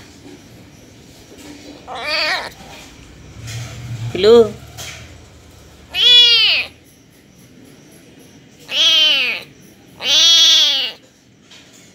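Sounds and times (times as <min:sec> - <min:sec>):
kitten meowing: 0:01.9 - 0:02.6, 0:05.9 - 0:06.8, 0:08.7 - 0:11.0.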